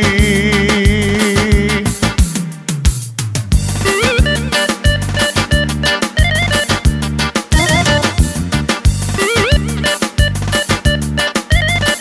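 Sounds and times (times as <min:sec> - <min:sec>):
lead melody with sliding notes: 0:03.9 - 0:10.6
steady drum beat: 0:06.9 - 0:09.2
sustained bass: 0:07.5 - 0:09.1.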